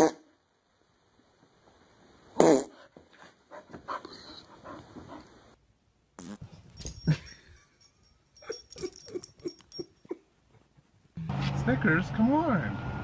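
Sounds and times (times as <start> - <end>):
dog grumbling and whining: 8.4 - 10.3.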